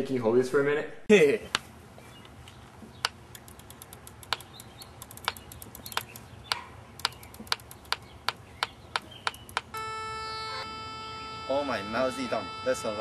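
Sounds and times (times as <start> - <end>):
keypad button clicks: 7.0 - 9.8
steady electronic tone: 9.7 - 13.0.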